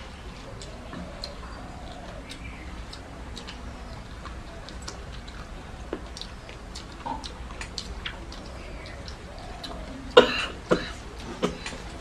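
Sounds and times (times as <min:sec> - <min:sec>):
wet chewing: 0:00.4 - 0:12.0
lip-smacking clicks: 0:00.6 - 0:10.2.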